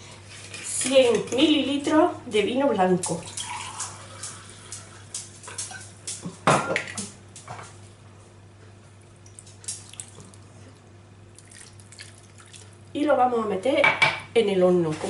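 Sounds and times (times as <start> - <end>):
wine pouring into glass: 3.3 - 4.6
liquid poured over chicken: 11.4 - 12.8.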